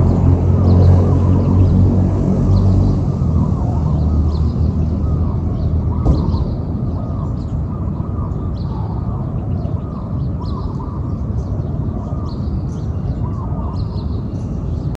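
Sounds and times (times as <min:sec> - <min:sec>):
steady low rumble: 0:00.0 - 0:15.0
dove cooing: 0:03.0 - 0:12.5.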